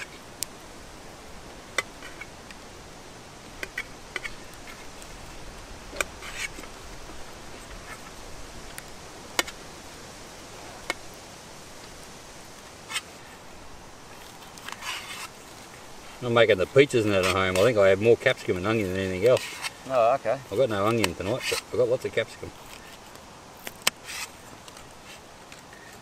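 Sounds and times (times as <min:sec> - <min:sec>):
background hiss: 0:00.0 - 0:26.0.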